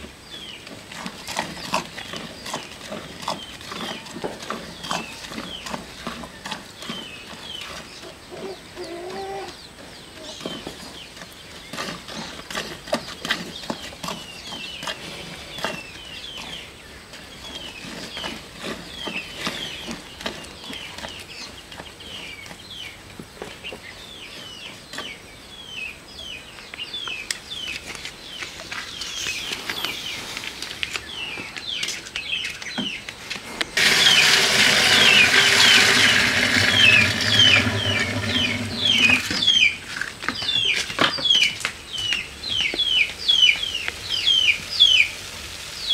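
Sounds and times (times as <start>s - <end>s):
bird chirping: 0.1s - 45.1s
milk pouring into steel can: 33.8s - 39.5s.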